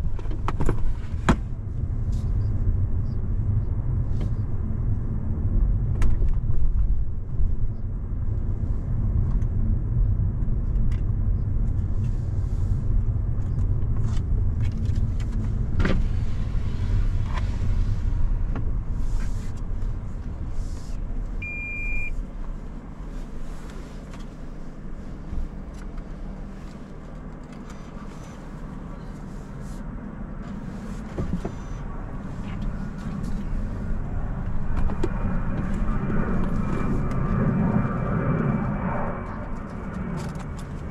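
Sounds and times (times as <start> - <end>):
road and engine rumble: 0.0 - 40.9
short electronic beep: 21.4 - 22.2.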